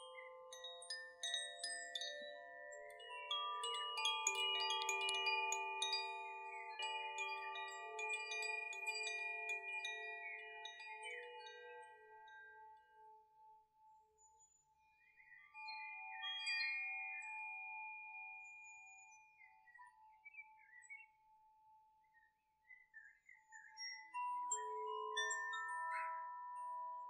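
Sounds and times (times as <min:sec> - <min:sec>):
wind chimes ringing: 0:00.0 - 0:11.8.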